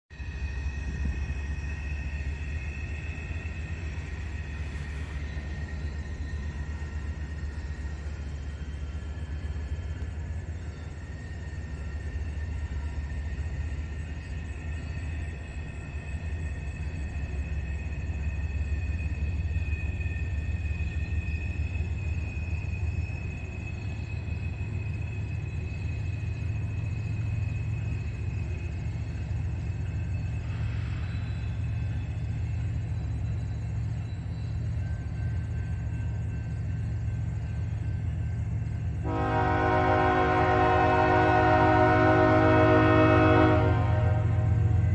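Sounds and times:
low train rumble: 0.1 - 44.9
train wheels squealing: 0.1 - 44.9.

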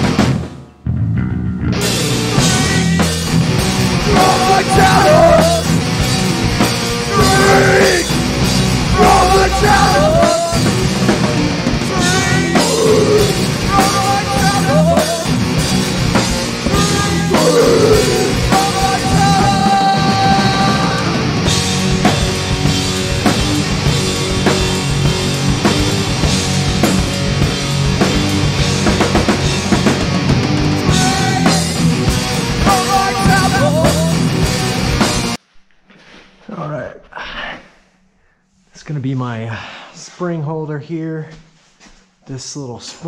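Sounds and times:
drum kit beat: 0.0 - 0.6, 1.7 - 35.4
loud rock music: 0.0 - 35.4.

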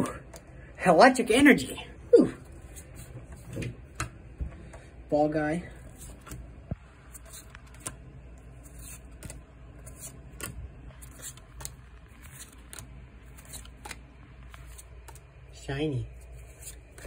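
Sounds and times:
trading cards flicking: 8.7 - 15.3.

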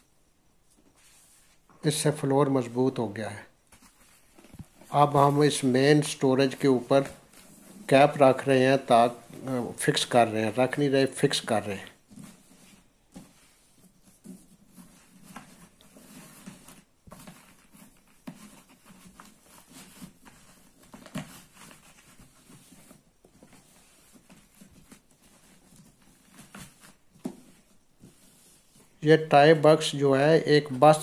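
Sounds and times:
faint rustling: 3.6 - 10.8.

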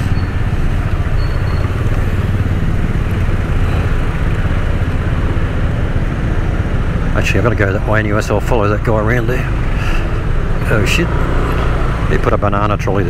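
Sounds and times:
scooter engine running: 0.1 - 7.1.

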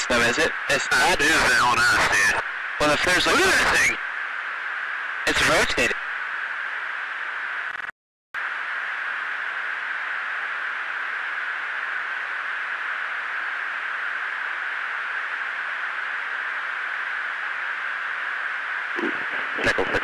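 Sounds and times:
intercom hiss: 0.0 - 4.0, 5.3 - 6.0, 19.0 - 20.0.

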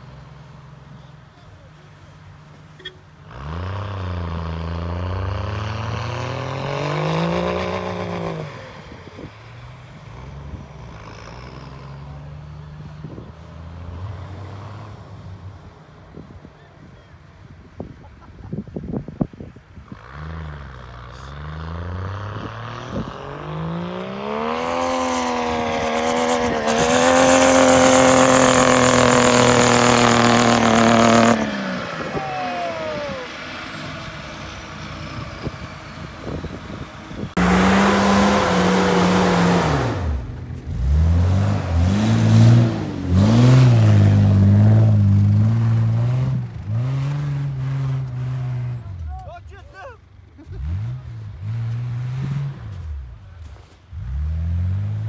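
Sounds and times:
diesel engine revving high: 3.2 - 15.4, 19.8 - 49.2, 50.4 - 53.2, 53.9 - 55.0
diesel engine revving in bursts: 3.3 - 8.8, 19.9 - 49.1, 50.5 - 53.2.

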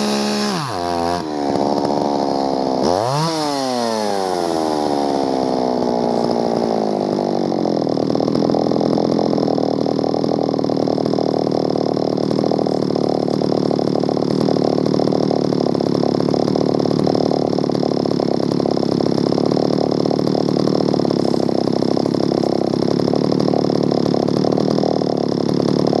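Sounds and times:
chainsaw engine idling: 0.0 - 26.0.

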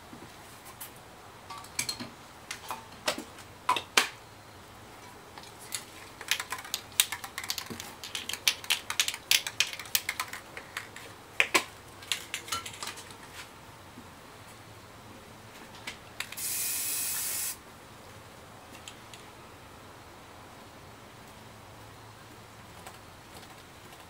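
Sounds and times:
spray cans and tools clinking: 16.3 - 17.6.

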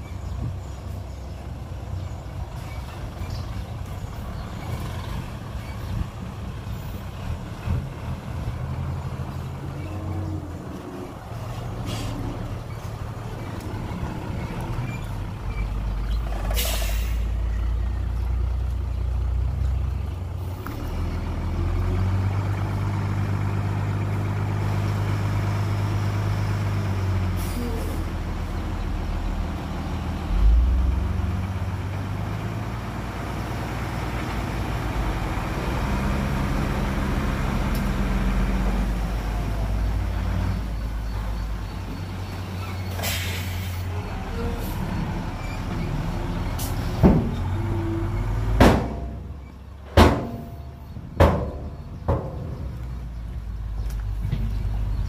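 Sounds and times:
heavy diesel engine working: 0.0 - 55.0
sharp knocks: 49.9 - 50.6, 51.2 - 52.7.

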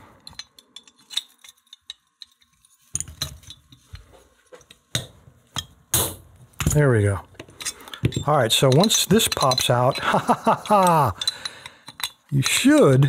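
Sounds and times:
metal tools clicking on lock: 7.6 - 13.0.

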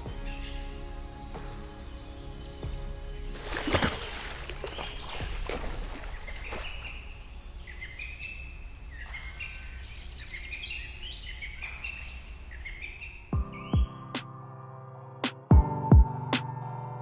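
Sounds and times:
river water splashing: 3.2 - 10.8.

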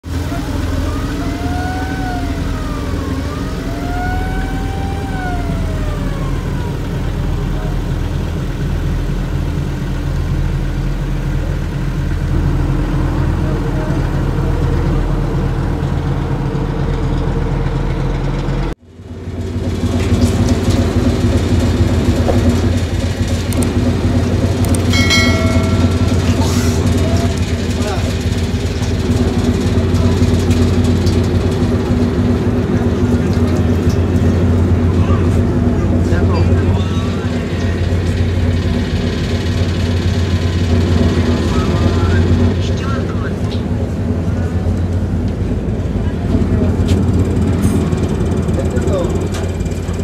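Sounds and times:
rising and falling tone: 0.0 - 8.6, 24.5 - 27.4
ferry engine drone: 0.0 - 50.0
short chime: 24.9 - 26.8.

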